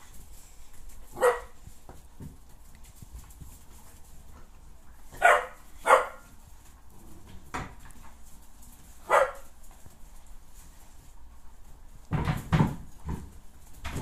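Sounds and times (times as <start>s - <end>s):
puppies barking: 1.1s - 1.6s, 5.1s - 6.4s, 9.0s - 9.6s.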